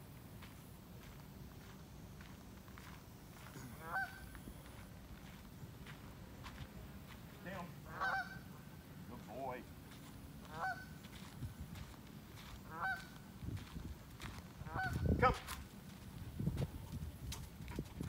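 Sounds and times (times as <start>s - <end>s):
geese honking: 3.5s - 4.4s, 7.8s - 9.3s, 10.4s - 11.2s, 12.6s - 13.2s, 14.6s - 15.2s.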